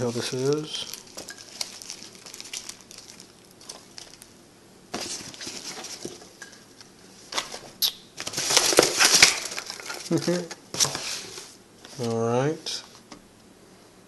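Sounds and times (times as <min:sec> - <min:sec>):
packing peanuts rustling: 0:00.0 - 0:04.3, 0:08.2 - 0:10.5
bubble wrap crinkling: 0:00.0 - 0:04.4, 0:08.2 - 0:11.0.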